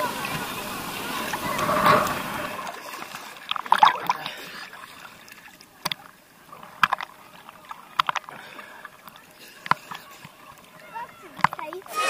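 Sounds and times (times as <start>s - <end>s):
water sloshing and splashing: 0.0s - 12.0s
sharp water slaps: 1.5s - 4.3s.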